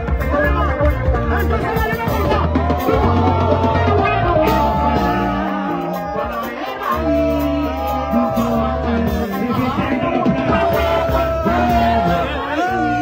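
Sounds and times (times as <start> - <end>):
electric bass: 0.0 - 13.0
keyboard: 0.0 - 13.0
man singing into microphone: 1.5 - 13.0.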